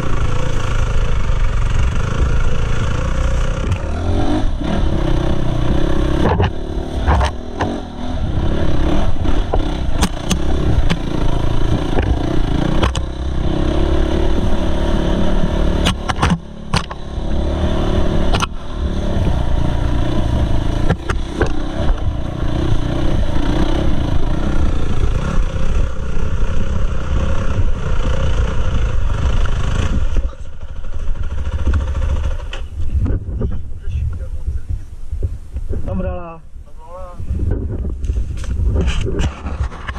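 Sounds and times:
dirt bike engine revving: 0.0 - 32.8.

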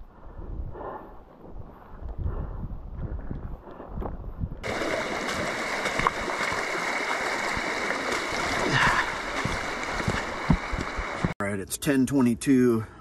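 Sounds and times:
footsteps on rocky ground: 3.0 - 11.4
heavy rain on rain gear: 4.6 - 11.4.

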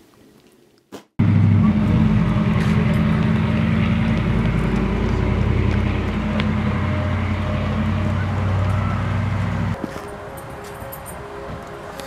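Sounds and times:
car engine drone: 1.2 - 10.4
road noise: 1.2 - 12.0.

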